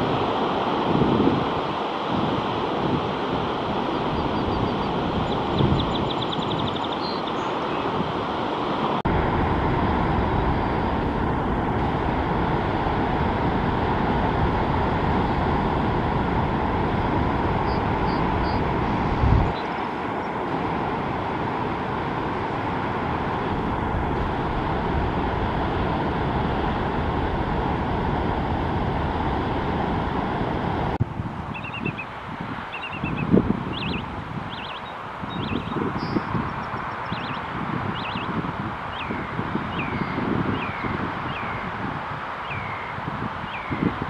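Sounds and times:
ocean surf: 0.0 - 44.0
wind on microphone: 0.0 - 44.0
faint high bird chirps: 4.2 - 7.9, 31.6 - 32.1, 32.7 - 38.3, 38.9 - 41.7, 42.4 - 43.8.

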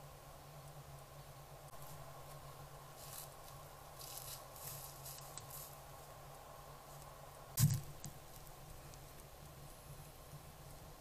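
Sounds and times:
footsteps rustling dry leaves: 1.8 - 6.2
loud thump: 7.6 - 8.0.

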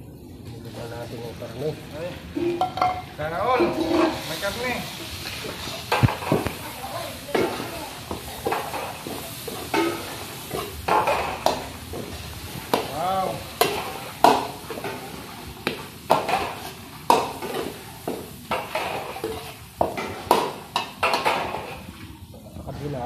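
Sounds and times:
meat sizzling: 0.0 - 23.0
metal ladle scraping a wok: 3.6 - 4.6, 18.5 - 20.3.

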